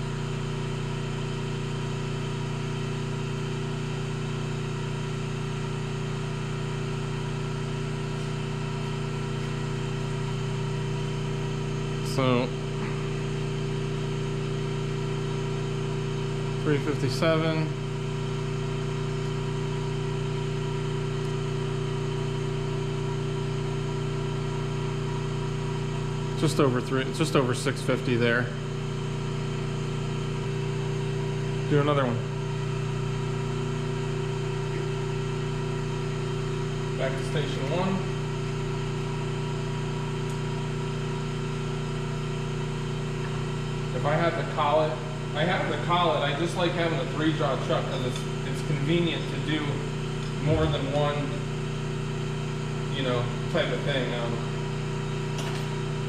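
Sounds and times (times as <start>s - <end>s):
lathe electric hum: 0.0s - 56.0s.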